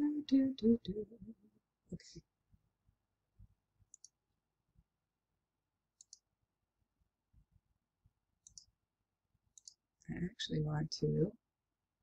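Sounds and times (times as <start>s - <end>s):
computer mouse clicks: 3.9s - 4.2s, 6.0s - 6.3s, 8.4s - 8.7s, 9.5s - 9.8s.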